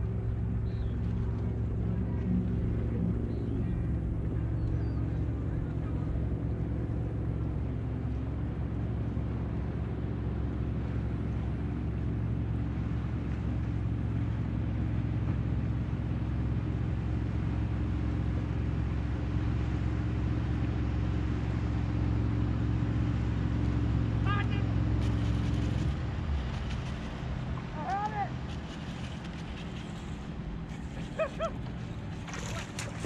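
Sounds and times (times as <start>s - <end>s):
electric trolling motor humming: 0.0s - 33.0s.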